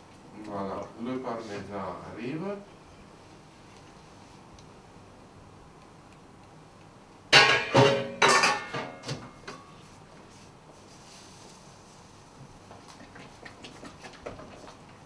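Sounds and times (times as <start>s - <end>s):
cookware clattering: 7.4s - 9.1s.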